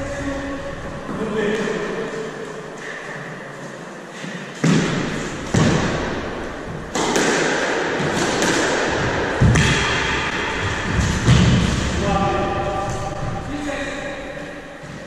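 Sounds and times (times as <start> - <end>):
squash ball hits: 4.6 - 13.5.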